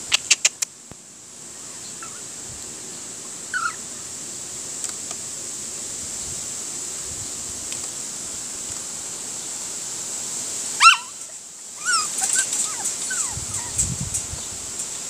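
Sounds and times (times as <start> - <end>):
sharp clicks: 0.1 - 0.8
puppy whimpering: 3.5 - 3.8, 11.8 - 13.9.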